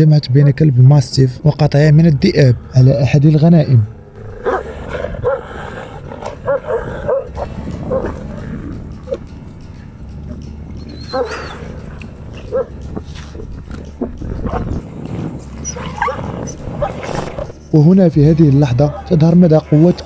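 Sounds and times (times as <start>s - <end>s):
steady low rumble: 0.0s - 20.0s
dogs yelping and barking: 4.0s - 9.3s, 10.3s - 14.8s, 15.6s - 17.6s, 18.8s - 19.8s.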